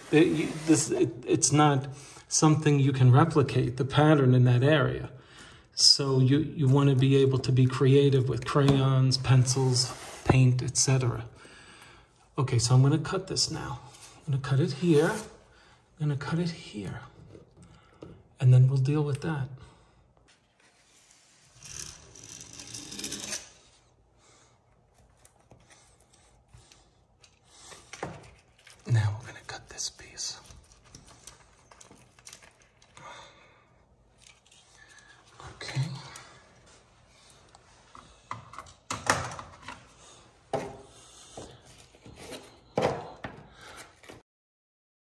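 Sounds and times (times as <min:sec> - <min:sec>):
knife slicing wallpaper: 0:00.0 - 0:01.0
wallpaper smoother scraping: 0:00.0 - 0:01.2, 0:09.3 - 0:10.3, 0:14.8 - 0:15.4, 0:20.6 - 0:23.6.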